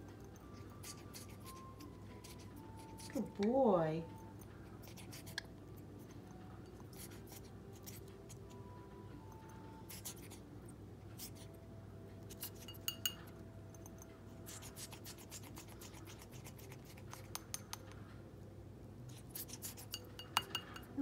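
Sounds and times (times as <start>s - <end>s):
beak tapping on glass bowl: 12.6s - 13.9s, 19.9s - 21.0s.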